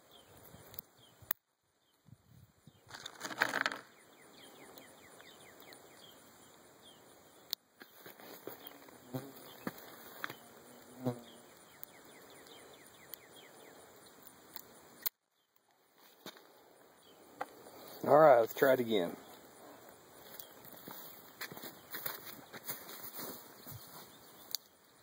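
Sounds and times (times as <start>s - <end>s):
insects chirping: 0.0s - 25.0s.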